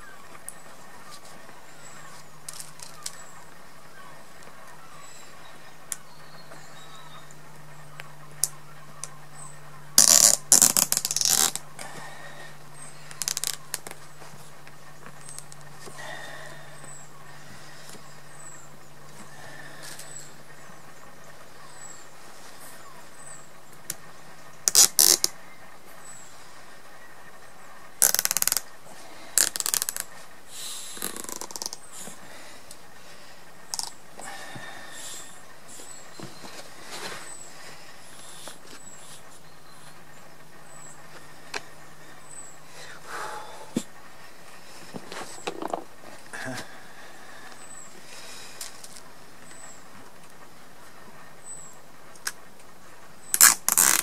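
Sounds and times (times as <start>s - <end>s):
cable ties ratcheting zip: 10.0s - 11.6s, 13.1s - 13.9s, 24.6s - 25.3s, 28.0s - 28.6s, 29.4s - 30.0s, 31.0s - 31.8s, 53.3s - 54.0s.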